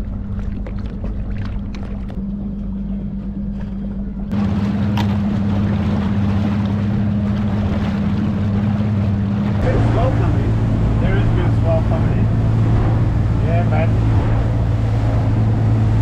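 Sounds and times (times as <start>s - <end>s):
outboard motor humming: 0.0s - 16.0s
rush of wind and water: 4.3s - 16.0s.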